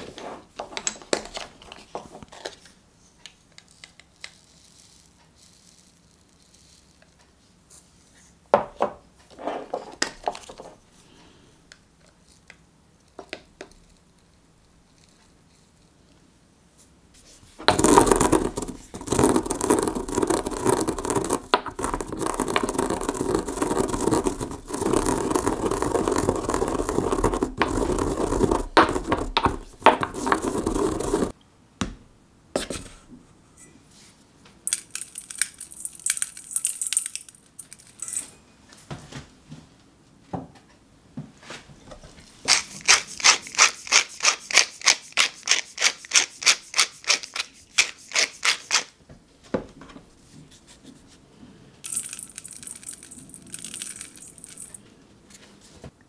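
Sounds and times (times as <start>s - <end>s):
pestle grinding seeds in mortar: 17.6s - 31.4s, 42.4s - 49.0s, 51.9s - 54.8s.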